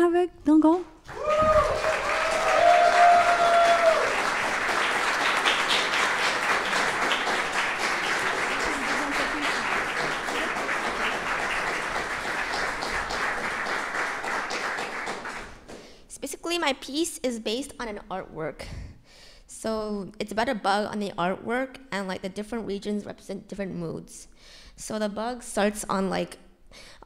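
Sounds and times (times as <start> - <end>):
audience applauding: 1.0 - 15.9
person cheering: 1.1 - 4.4.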